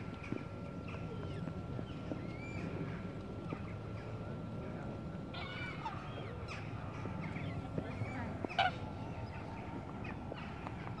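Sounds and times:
geese honking: 8.5 - 8.9.

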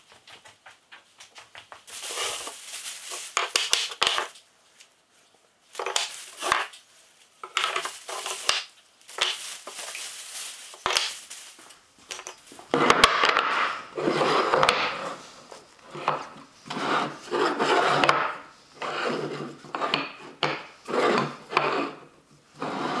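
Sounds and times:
plastic bag rustling: 1.8 - 12.8
wooden blocks knocking on bench: 19.8 - 20.7.

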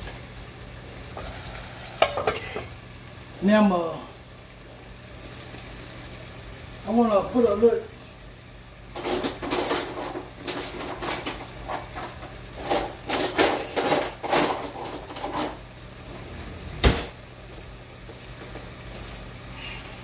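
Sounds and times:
kitchen things clattering: 1.2 - 2.7, 9.0 - 15.6.

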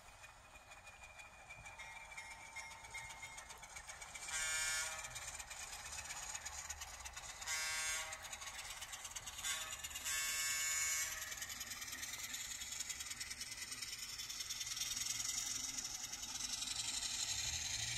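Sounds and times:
low diesel engine sound: 0.0 - 17.9
model train running: 0.0 - 17.9
model train horn blasts: 4.3 - 5.1, 7.4 - 8.3, 9.4 - 11.2.

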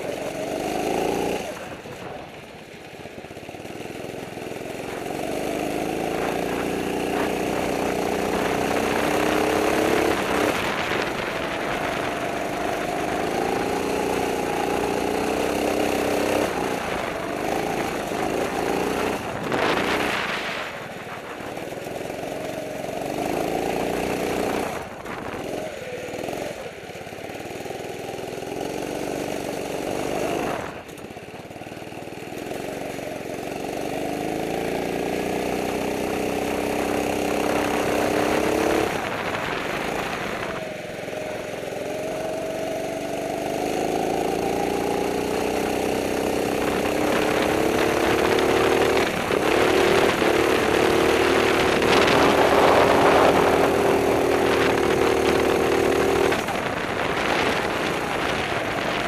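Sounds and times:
go-kart engine accelerating: 0.0 - 59.0.

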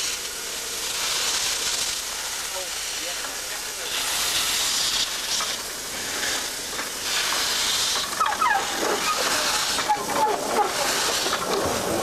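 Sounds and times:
steam hissing from locomotive: 0.0 - 12.0
short high falling calls: 8.2 - 10.9.

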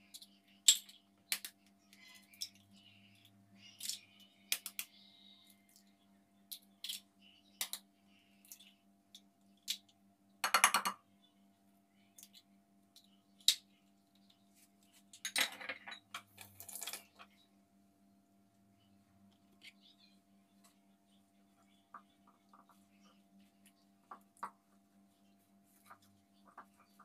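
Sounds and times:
faint steady hum: 0.0 - 27.0
eggs cracking on glass bowl: 9.6 - 11.0.

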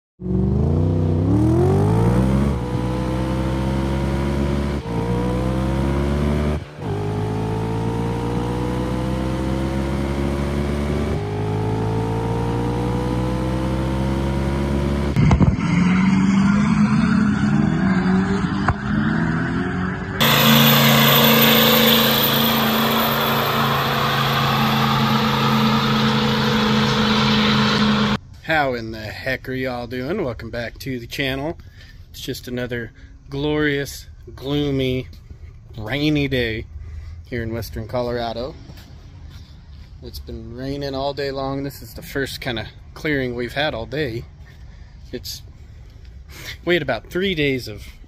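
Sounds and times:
vehicle engine accelerating: 0.2 - 28.2
steady engine drone: 0.3 - 15.6, 16.9 - 28.2.

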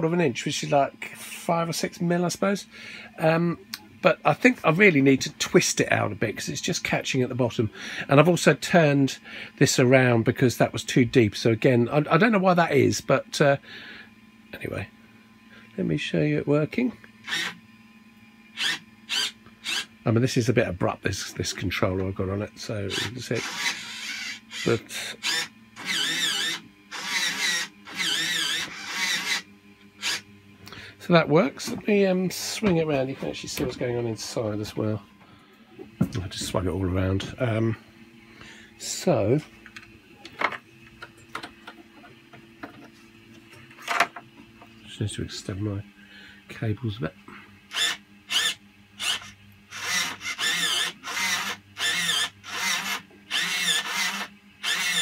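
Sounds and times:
faint steady hum: 0.0 - 55.0
servo motor whine: 17.2 - 17.6, 18.5 - 19.9, 22.6 - 30.8, 47.3 - 55.0.

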